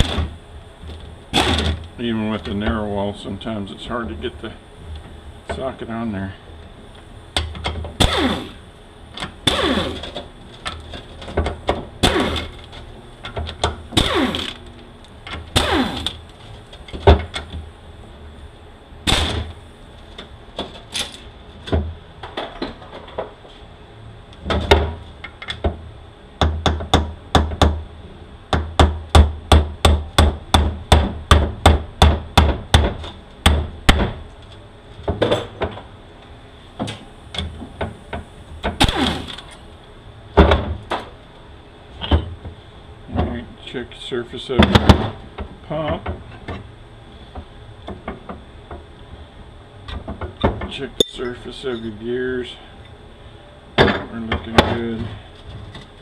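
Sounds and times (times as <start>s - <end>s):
tool noise: 1.3s - 1.9s, 8.0s - 8.6s, 9.2s - 12.9s, 13.9s - 16.2s, 38.7s - 39.6s.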